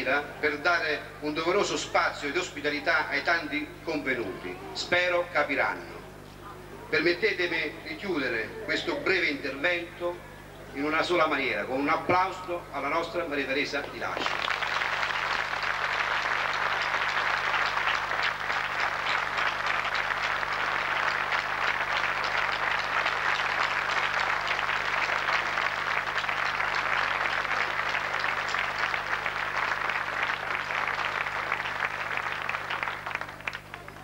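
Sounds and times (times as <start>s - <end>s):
crowd applauding: 14.1s - 34.0s.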